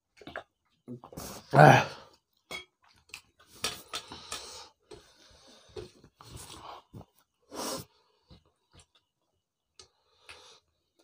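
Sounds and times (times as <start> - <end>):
wet chewing and smacking: 0.0 - 1.1, 2.2 - 7.3.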